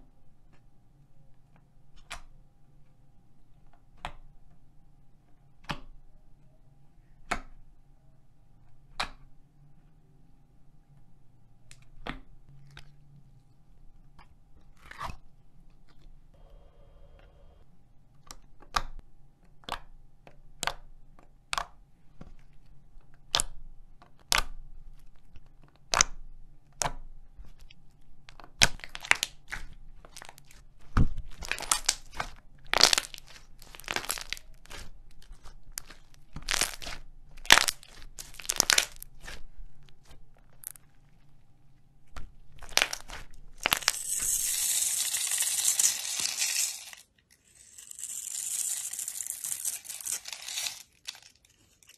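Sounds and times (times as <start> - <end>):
slime squished by fingers: 28.3 - 40.8, 42.1 - 44.0.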